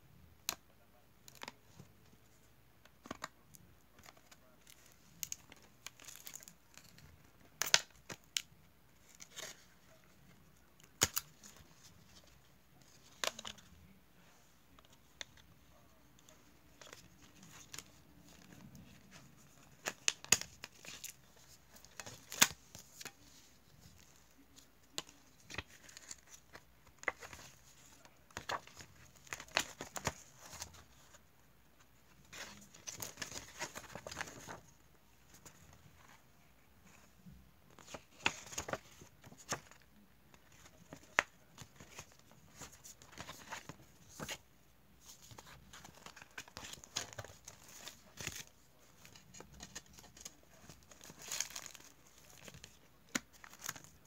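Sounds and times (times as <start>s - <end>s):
paper crinkling and rustling: 14.7s - 31.2s, 31.9s - 37.1s, 37.7s - 44.4s, 45.0s - 54.0s.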